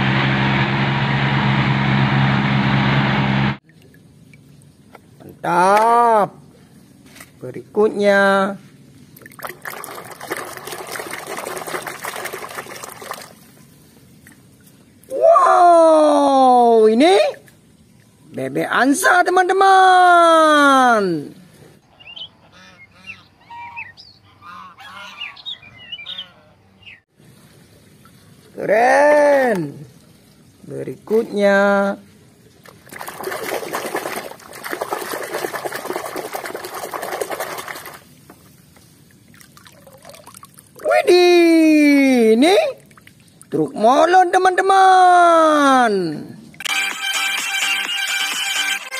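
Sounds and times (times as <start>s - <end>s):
water sloshing in basin: 9.0s - 15.1s, 32.2s - 41.0s, 42.7s - 43.7s.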